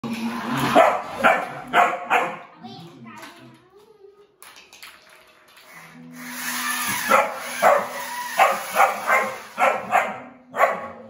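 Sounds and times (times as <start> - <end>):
puppy barking: 0.8 - 2.5, 7.1 - 11.0.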